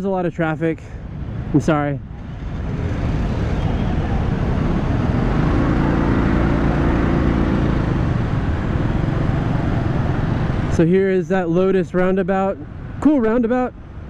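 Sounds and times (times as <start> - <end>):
motorbike traffic din: 1.2 - 10.9.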